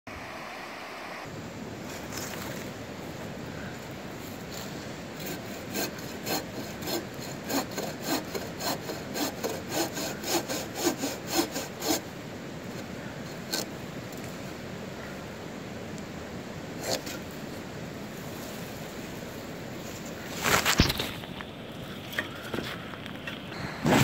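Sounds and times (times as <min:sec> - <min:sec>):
bow saw cutting wood: 0:04.1 - 0:12.1, 0:12.8 - 0:13.8, 0:16.8 - 0:17.4.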